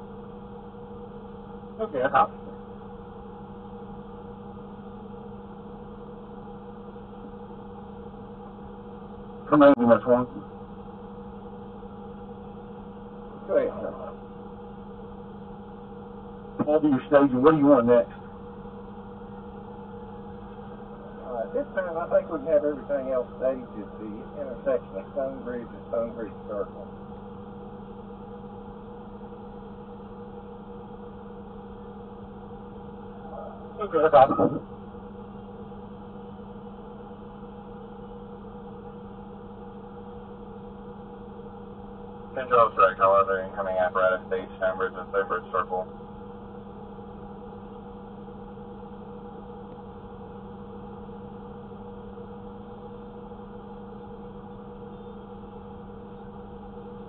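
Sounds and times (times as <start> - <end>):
low hum with hiss: 0.0 - 57.0
vehicle engine idling: 0.0 - 57.0
constant hiss: 19.9 - 26.8, 42.4 - 45.8.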